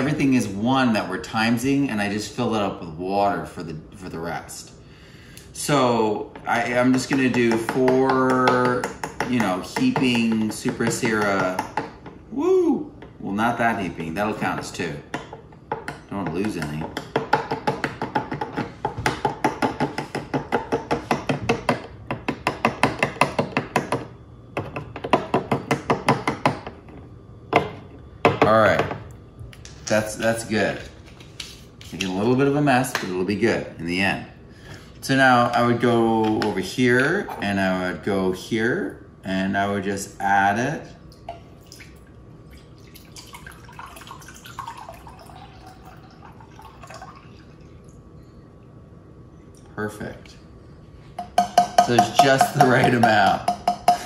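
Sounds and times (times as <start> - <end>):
liquid trickling into a cup: 41.1 - 48.3.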